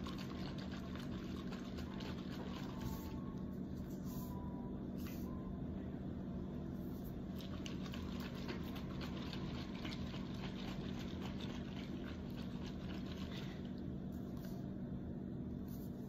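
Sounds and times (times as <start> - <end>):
liquid sloshing in shaken bottle: 0.0 - 3.2, 7.3 - 14.4
steady low hum: 0.0 - 16.0.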